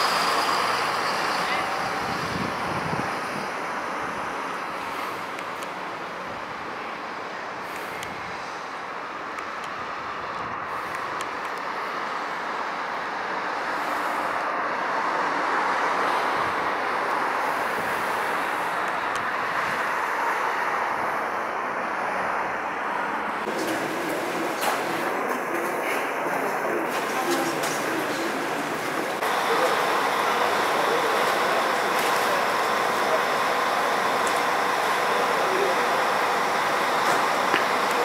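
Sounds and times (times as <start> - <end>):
buses driving by: 0.0 - 38.0.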